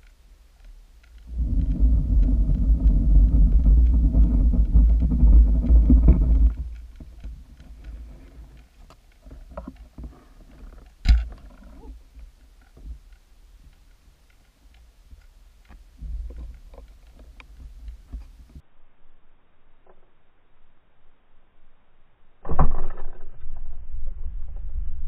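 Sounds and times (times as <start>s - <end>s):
small clicks: 0.0s - 18.6s
low underwater rumble: 1.2s - 8.5s.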